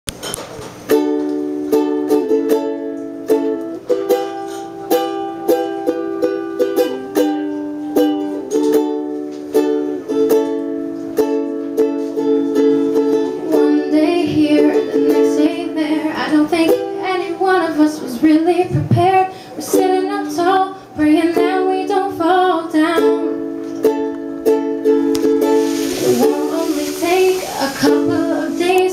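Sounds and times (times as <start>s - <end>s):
strummed acoustic guitar chords: 18.5s - 28.9s.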